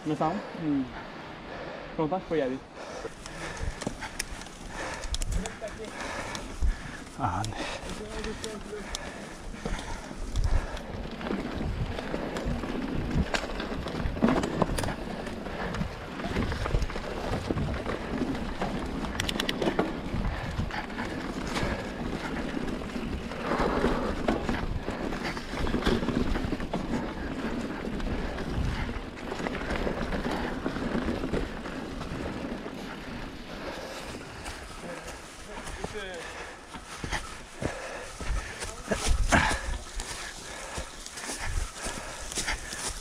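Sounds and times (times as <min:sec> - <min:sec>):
bike tyres rolling on dirt: 0:00.0 - 0:43.0
bike rattling over bumps: 0:02.4 - 0:43.0.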